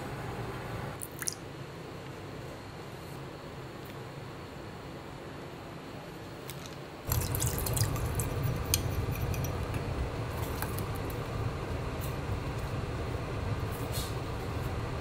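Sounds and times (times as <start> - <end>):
sauce bubbling and crackling: 7.1 - 11.3
gas burner rumble: 7.1 - 15.0.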